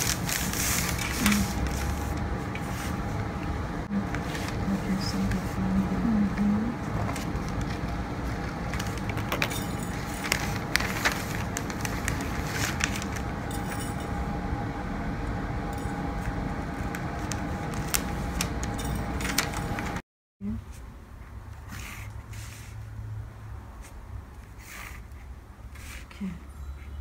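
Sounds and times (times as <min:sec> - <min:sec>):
paper and fabric rustling: 0:00.0 - 0:03.1, 0:04.0 - 0:05.7, 0:06.5 - 0:13.3, 0:16.8 - 0:20.0
faint constant whine: 0:00.0 - 0:21.6
room rumble: 0:00.0 - 0:27.0.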